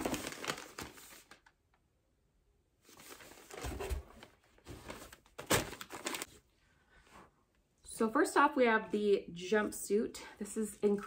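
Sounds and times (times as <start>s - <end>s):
paper bag rustling: 0.0s - 1.5s, 2.9s - 6.4s.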